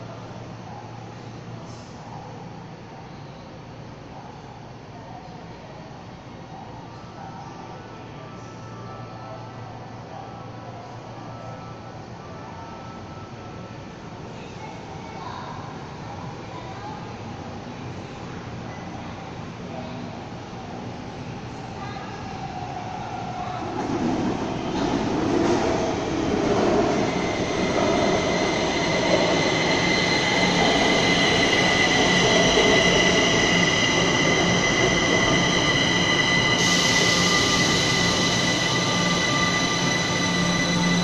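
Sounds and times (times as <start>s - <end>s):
high whine of train: 0.0s - 41.0s
electric train rumbling: 20.2s - 41.0s.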